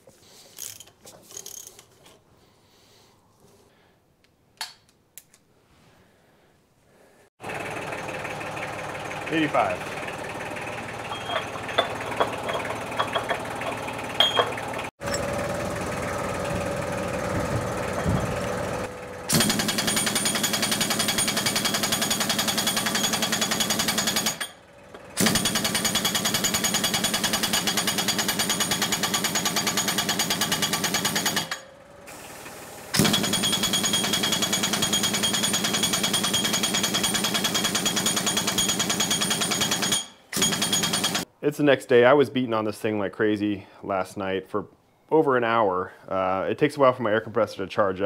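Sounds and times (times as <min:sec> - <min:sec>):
pneumatic impact wrench hammering: 0:10.9 - 0:15.3, 0:19.3 - 0:41.3.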